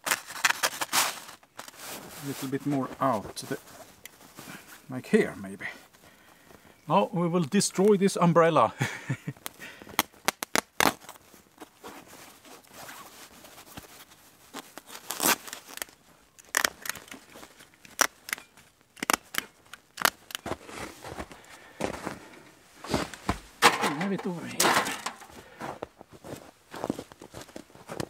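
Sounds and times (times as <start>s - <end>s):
fabric snipping and ripping: 0.0s - 1.2s, 10.0s - 11.2s, 14.8s - 17.2s, 17.9s - 20.4s
fabric rustling: 11.1s - 15.8s.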